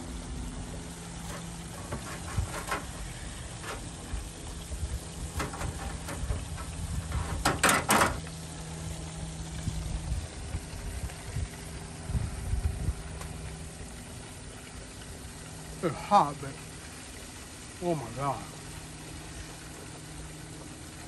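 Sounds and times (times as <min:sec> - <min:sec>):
low engine-like hum: 0:00.0 - 0:21.0
knife scraping metal rack: 0:01.2 - 0:04.3, 0:05.3 - 0:08.3.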